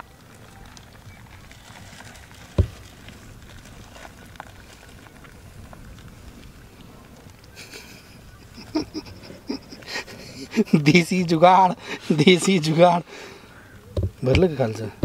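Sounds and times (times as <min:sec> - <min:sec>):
paper wrappings crinkling: 0:00.0 - 0:13.0
dull thump: 0:02.6 - 0:02.8, 0:14.0 - 0:14.5.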